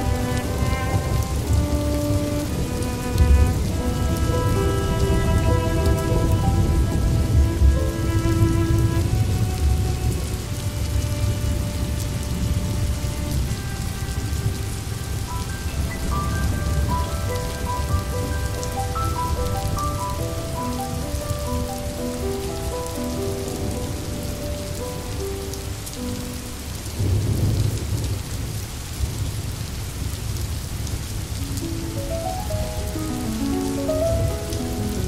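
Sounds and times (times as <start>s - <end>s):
low rumble of thunder: 0.0s - 18.8s, 26.4s - 31.4s
slow melodic notes: 0.0s - 26.9s, 31.4s - 35.0s
steady rain: 0.0s - 35.0s.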